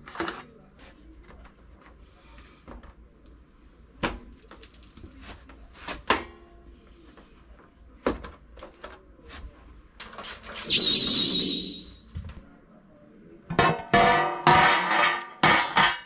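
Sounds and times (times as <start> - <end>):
clicks and knocks of objects: 4.0 - 6.3
loud hissing rush: 10.2 - 12.0.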